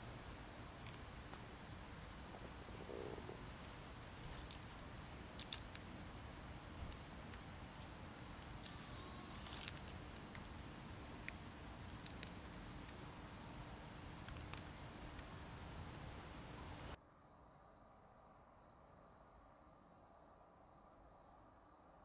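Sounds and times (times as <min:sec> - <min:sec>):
crickets trilling: 0:00.0 - 0:17.0
light clicks and ticks: 0:14.2 - 0:15.3.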